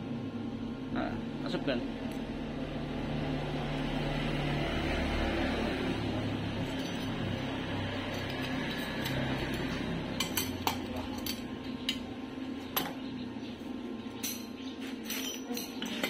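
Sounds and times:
steady low hum: 0.0 - 15.8
metal parts clinking: 14.2 - 16.0.

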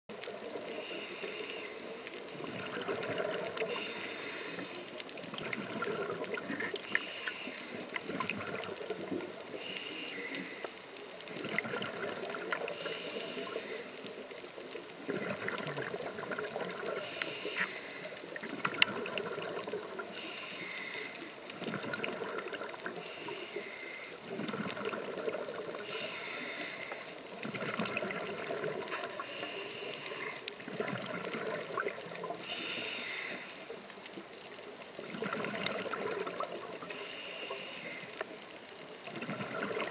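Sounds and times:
exhaled bubbles gurgling: 0.1 - 9.7, 10.4 - 39.9
regulator breath hissing: 0.7 - 2.2, 3.6 - 5.0, 6.9 - 8.0, 9.5 - 10.8, 12.7 - 14.1, 16.9 - 18.3, 20.1 - 21.4, 23.0 - 24.2, 25.8 - 27.2, 29.2 - 30.5, 32.4 - 33.8, 36.8 - 38.2.

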